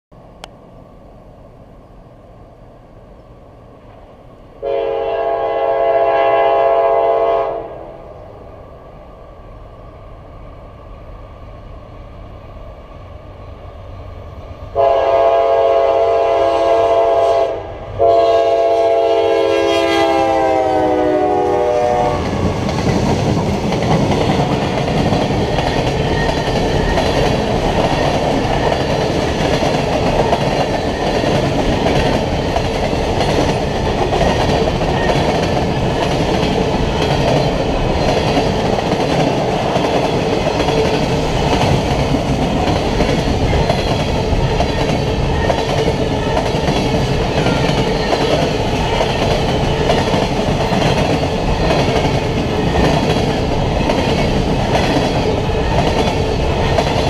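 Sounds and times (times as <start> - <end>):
locomotive horn blasts: 4.6 - 7.8, 14.8 - 22.4
train cars rumbling and clattering: 18.0 - 57.0.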